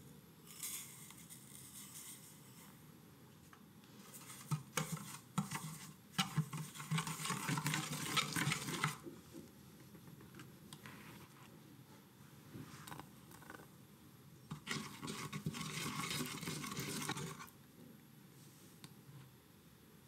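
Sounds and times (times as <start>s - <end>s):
whisk clicking and scraping pot: 4.1s - 9.1s, 14.5s - 17.6s.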